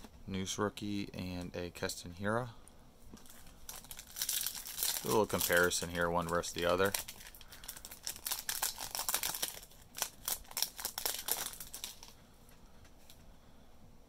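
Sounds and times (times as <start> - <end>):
foil wrapper crinkling: 3.2 - 12.2.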